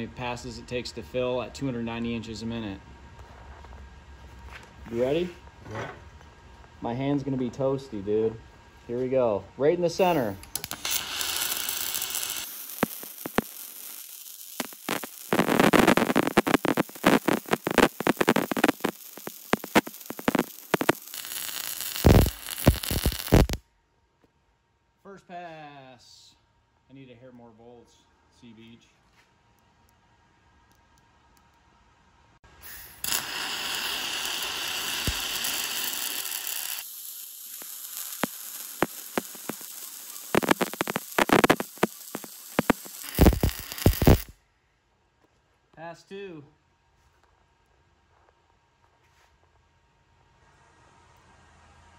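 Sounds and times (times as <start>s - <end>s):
welding arc crackling and hissing: 9.9s - 23.6s, 32.5s - 44.4s.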